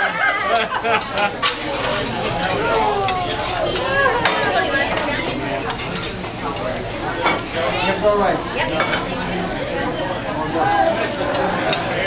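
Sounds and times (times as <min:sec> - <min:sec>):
fried rice sizzling on griddle: 0:00.5 - 0:12.0
metal spatulas scraping steel plate: 0:01.4 - 0:02.0.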